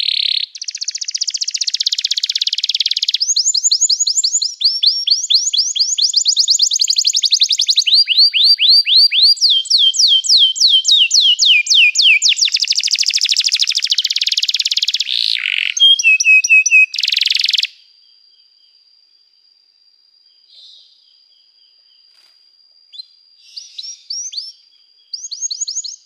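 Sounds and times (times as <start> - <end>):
canary singing: 0.0 - 17.7, 22.9 - 26.0
faint steady high whistle: 0.6 - 15.1.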